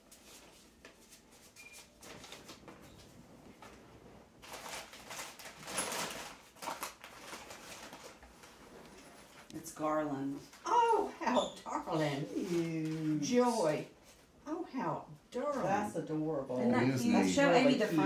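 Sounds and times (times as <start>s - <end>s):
paper rustling and crinkling: 0.0s - 9.5s.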